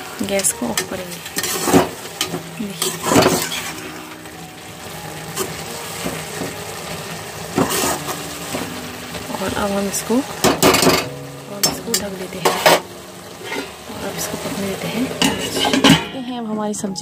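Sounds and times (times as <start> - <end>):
vegetables sizzling: 0.0 - 17.0
metal spatula scraping pan: 0.4 - 4.2, 7.5 - 8.7, 10.4 - 12.8, 13.4 - 13.9, 15.1 - 16.4.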